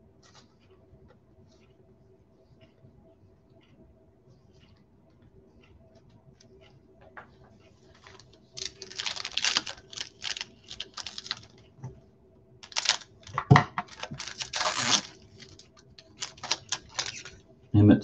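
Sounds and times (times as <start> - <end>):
crinkly rustling of card packs: 7.9 - 11.6, 12.6 - 17.4.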